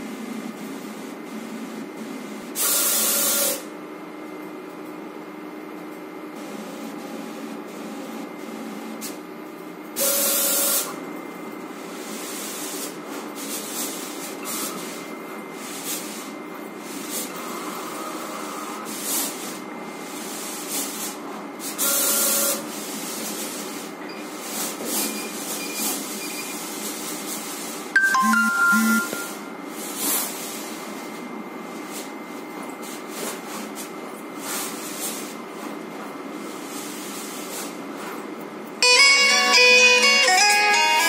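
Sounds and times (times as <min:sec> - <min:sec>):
cutting plotter motors whirring: 0:14.0 - 0:20.7.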